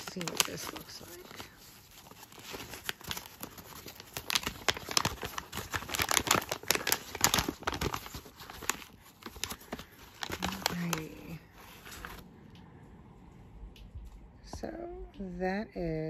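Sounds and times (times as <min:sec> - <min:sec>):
paper bag crinkling: 0:00.0 - 0:12.2.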